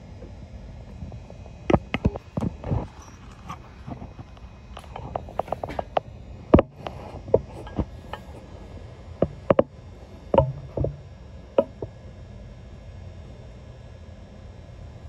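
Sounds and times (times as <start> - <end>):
sharp clacks and knocks: 10.3 - 11.9.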